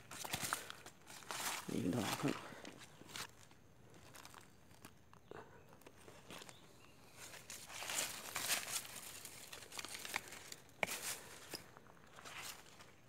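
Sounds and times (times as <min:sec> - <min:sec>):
footsteps on stony ground: 0:00.0 - 0:05.2, 0:05.8 - 0:13.0
shrubs rustling: 0:00.0 - 0:13.0.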